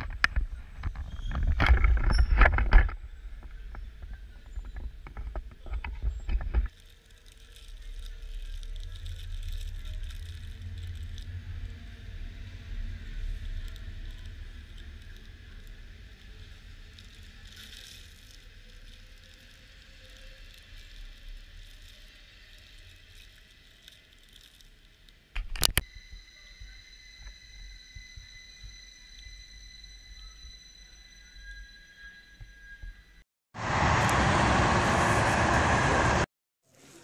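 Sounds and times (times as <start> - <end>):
train rumbling past: 33.6 - 36.3.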